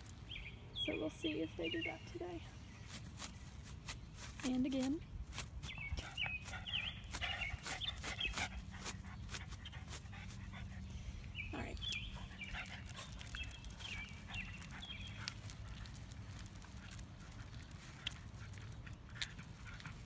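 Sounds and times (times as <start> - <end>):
dog panting: 5.9 - 20.0.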